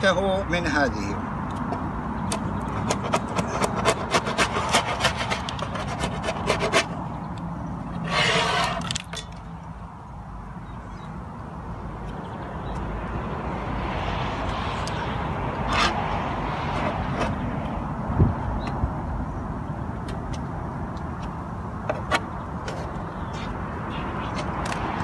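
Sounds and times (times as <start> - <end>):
metal tool scraping wax: 2.8 - 6.9, 8.0 - 9.2.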